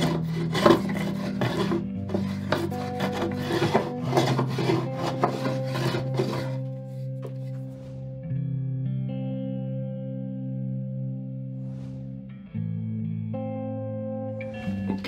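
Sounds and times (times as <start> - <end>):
plane rasping on wood: 0.0 - 8.0
soft background music: 0.0 - 15.0.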